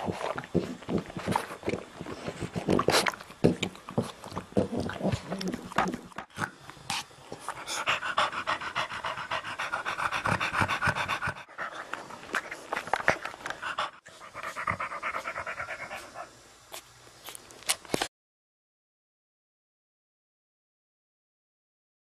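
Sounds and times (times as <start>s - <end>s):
dog panting quickly: 6.9s - 16.3s.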